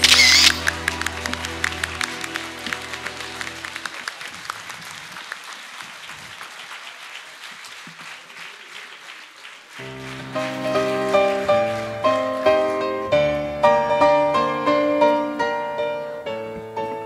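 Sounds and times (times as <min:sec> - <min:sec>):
piano music: 0:00.0 - 0:03.9, 0:09.8 - 0:17.0
audience applause: 0:00.0 - 0:13.8.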